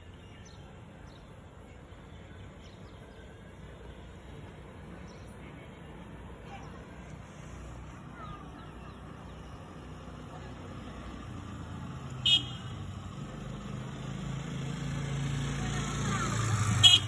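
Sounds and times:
vehicle engine rumbling: 0:00.9 - 0:17.0
horn toot: 0:12.2 - 0:12.7, 0:16.8 - 0:17.0.

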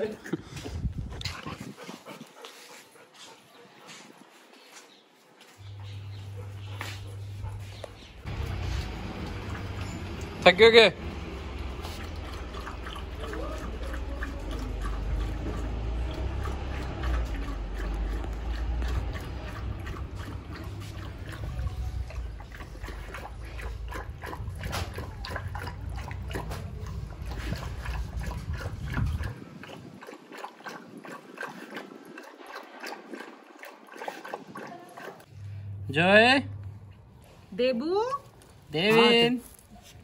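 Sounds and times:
dog lapping water: 0:05.6 - 0:35.7.

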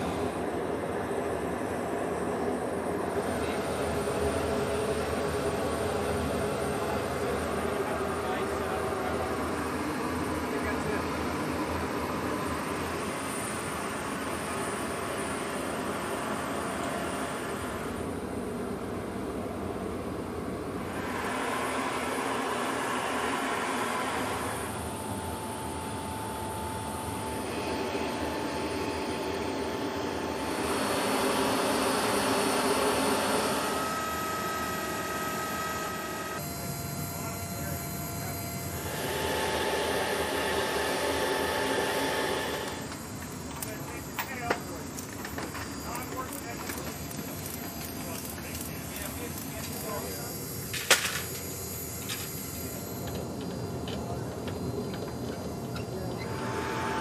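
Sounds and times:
jet engine rush and whine: 0:00.0 - 0:57.0
steady low hum: 0:00.0 - 0:57.0
thin high whine tone: 0:00.0 - 0:57.0.

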